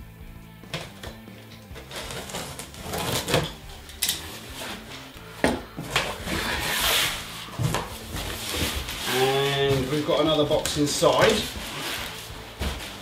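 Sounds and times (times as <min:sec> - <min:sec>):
packing tape pulled away: 0:00.9 - 0:05.0
cardboard rustling scrape: 0:01.8 - 0:03.6, 0:04.2 - 0:05.1, 0:05.8 - 0:10.4, 0:11.0 - 0:13.0.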